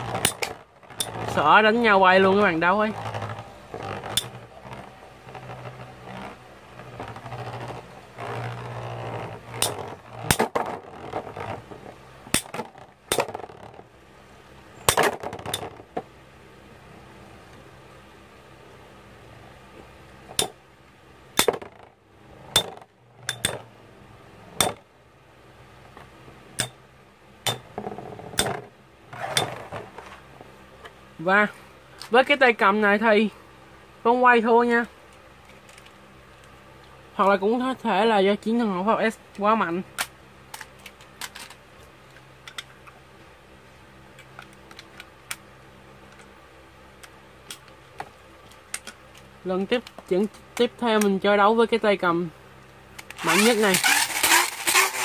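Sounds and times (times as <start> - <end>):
faint steady hum: 0.0 - 55.0
metal spinning tops clinking: 53.2 - 55.0.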